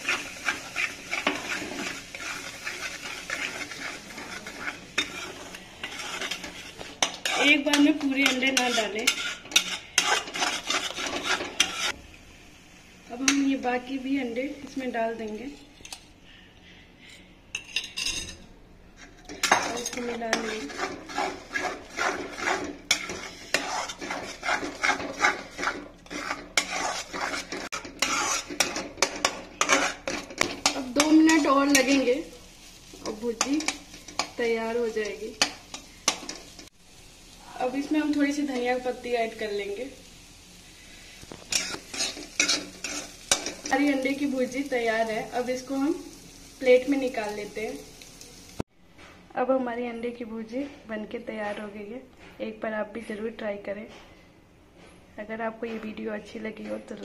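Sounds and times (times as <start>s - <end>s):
spatula scraping metal pan: 0.0s - 12.0s, 19.0s - 32.3s, 41.4s - 44.5s
eggs sizzling in oil: 0.0s - 16.1s, 19.0s - 48.7s.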